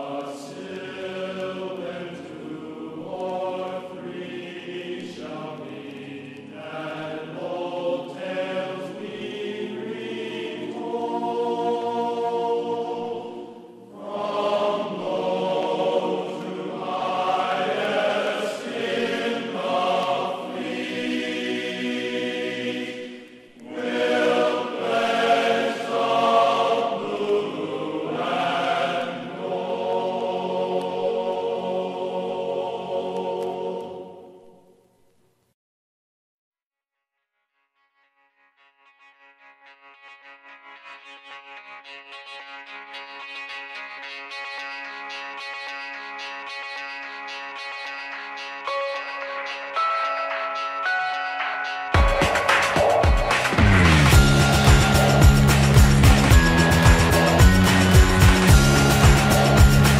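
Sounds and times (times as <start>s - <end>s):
slow choir-like chanting: 0.0s - 35.0s, 54.1s - 59.9s.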